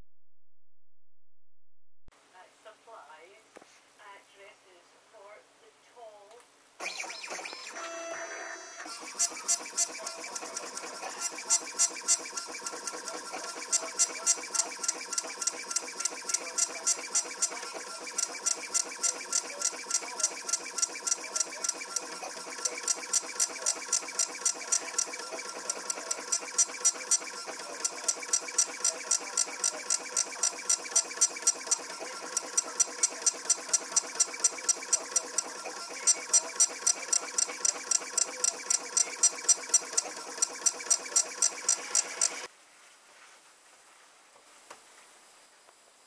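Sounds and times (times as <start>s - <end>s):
engraving machine motor hum: 6.8s - 42.5s
sharp ticks of engraving: 8.9s - 42.5s.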